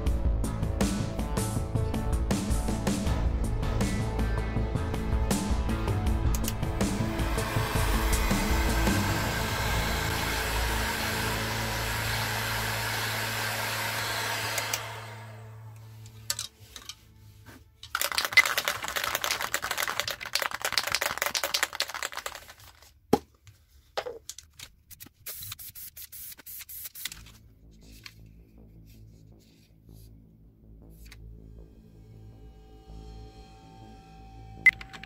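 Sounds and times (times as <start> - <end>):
heat gun blowing: 6.4 - 15.9
spray can shaken with ball rattling: 17.8 - 23.0, 25.2 - 27.4.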